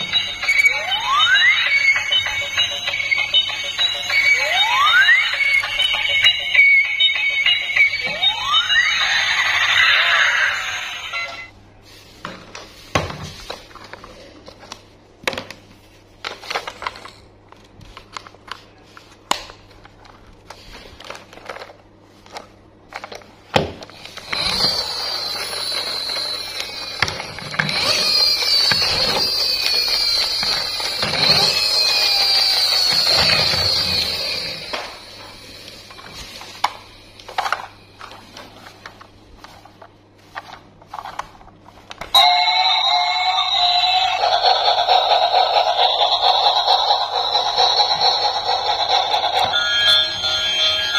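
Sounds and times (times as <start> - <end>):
electronic toy tune: 0.0 - 11.5, 24.0 - 36.2, 42.2 - 50.9
toy train motor and sound effects: 0.0 - 11.5, 23.9 - 38.5, 42.1 - 50.9.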